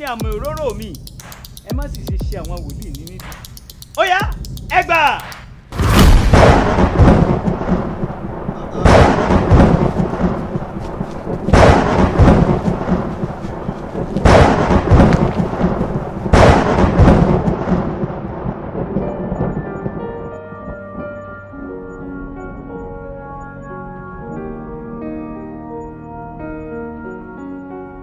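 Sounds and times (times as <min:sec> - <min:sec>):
thunderclaps rumbling: 0:05.7 - 0:20.5
soft music with held notes: 0:19.1 - 0:28.0.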